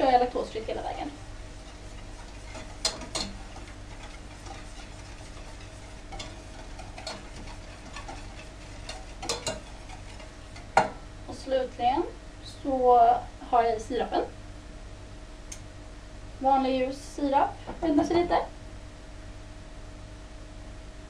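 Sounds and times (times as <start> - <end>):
faint steady hum: 0.0 - 21.0
whisk clinking against saucepan: 0.7 - 11.0.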